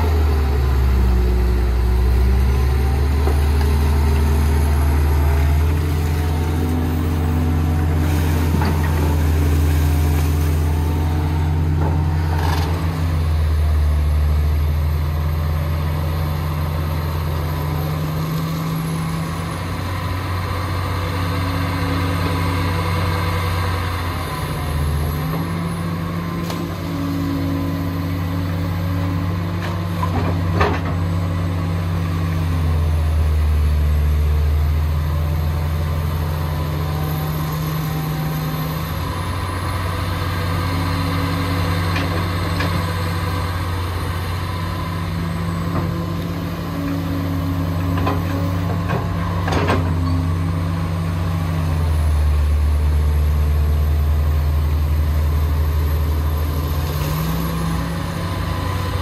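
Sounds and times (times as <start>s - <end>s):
diesel excavator engine under load: 0.0s - 59.0s.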